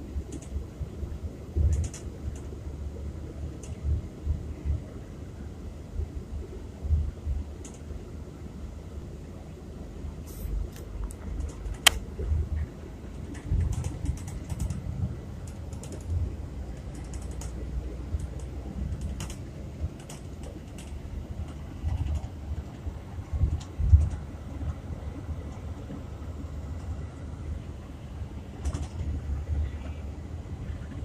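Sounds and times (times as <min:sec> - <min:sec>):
bus engine rumble from inside: 0:00.0 - 0:31.0
light clicks and ticks: 0:03.6 - 0:03.8, 0:07.6 - 0:07.9, 0:15.4 - 0:17.6.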